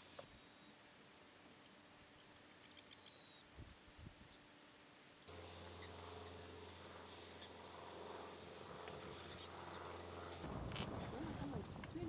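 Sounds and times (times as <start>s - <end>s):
steady low hum: 0.0s - 12.0s
high-pitched insect chirps: 5.4s - 12.0s.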